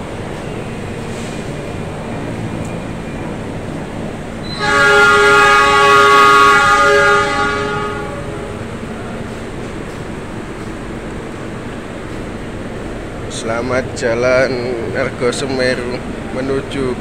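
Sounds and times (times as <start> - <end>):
station rumble: 0.0 - 17.0
locomotive horn blast: 4.4 - 8.9.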